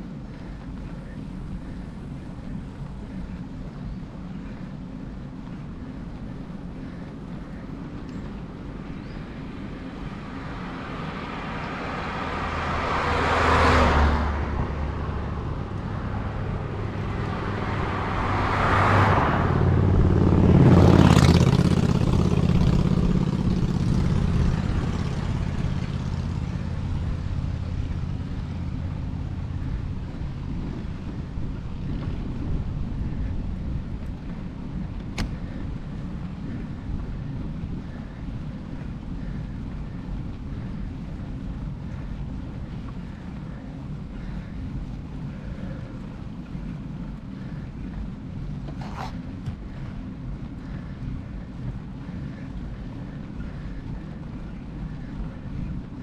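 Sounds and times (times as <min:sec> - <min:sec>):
bike tyres rolling on asphalt: 0:00.0 - 0:56.0
cars passing by: 0:00.0 - 0:56.0
wind on microphone: 0:14.3 - 0:56.0.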